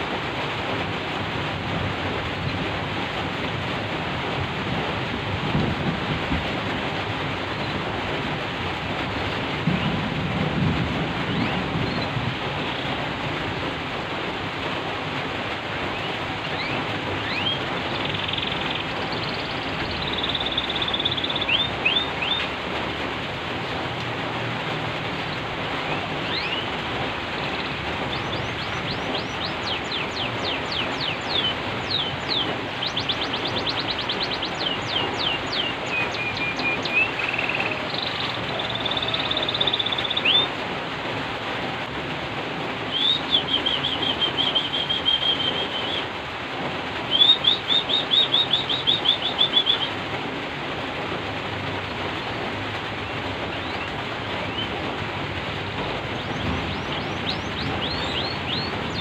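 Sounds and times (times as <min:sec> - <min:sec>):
rain hissing: 0:00.0 - 0:59.0
canary singing trills: 0:16.0 - 0:22.5, 0:25.8 - 0:26.7, 0:27.5 - 0:40.5, 0:42.9 - 0:46.1, 0:47.1 - 0:49.9, 0:56.1 - 0:59.0.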